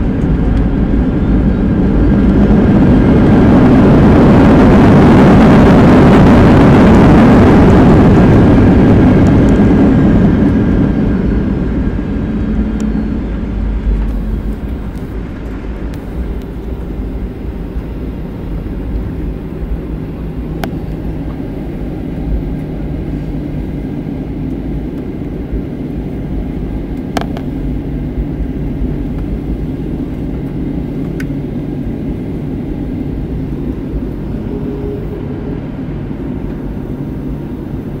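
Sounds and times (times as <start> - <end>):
jet engines and rushing air: 0.0 - 38.0.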